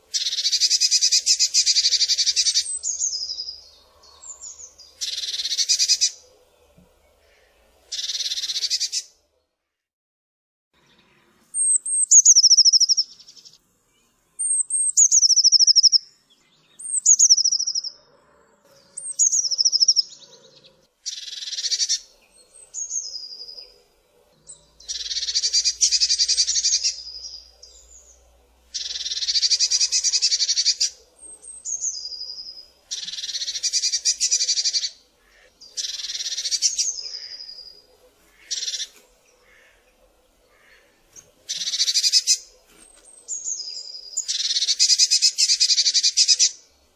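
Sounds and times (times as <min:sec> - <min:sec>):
bird buzzy churring calls: 0:24.8 - 0:27.4, 0:28.7 - 0:31.0, 0:32.9 - 0:37.6, 0:38.3 - 0:39.8.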